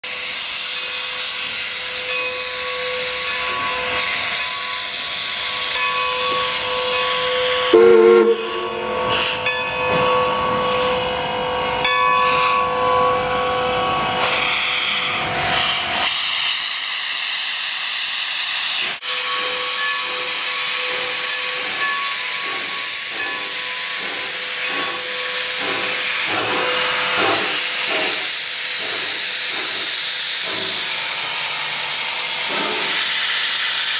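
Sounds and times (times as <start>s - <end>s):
steam locomotive hissing: 0.0s - 33.9s.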